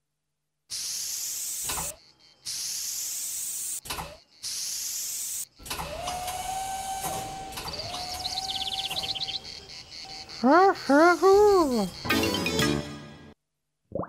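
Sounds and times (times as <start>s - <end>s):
motor-like whine: 4.3s - 10.4s
cartoon character wordless call: 10.3s - 12.0s.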